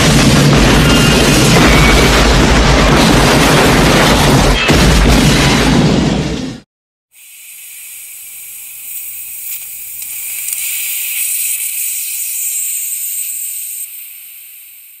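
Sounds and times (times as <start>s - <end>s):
gas escaping with high hiss: 7.1s - 15.0s.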